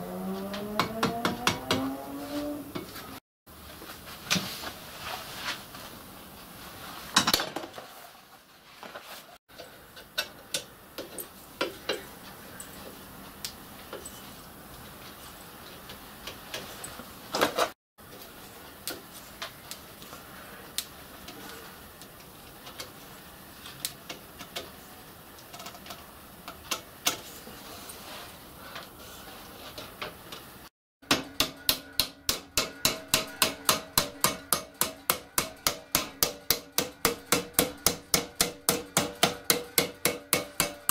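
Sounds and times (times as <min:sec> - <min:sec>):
hammer striking steel: 0:00.5 - 0:02.0, 0:31.0 - 0:40.9.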